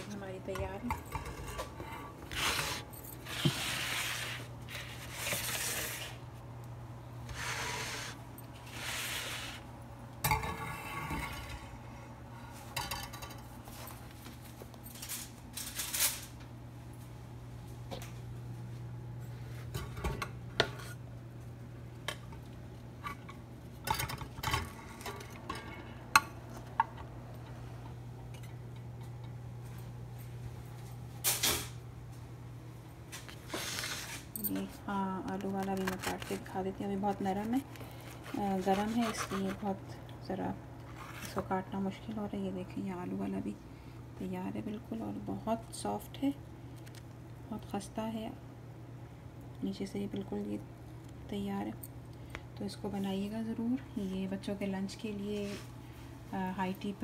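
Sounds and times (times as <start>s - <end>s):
steady low hum: 0.0s - 57.0s
bread knife scraping: 7.3s - 9.6s, 38.0s - 39.7s.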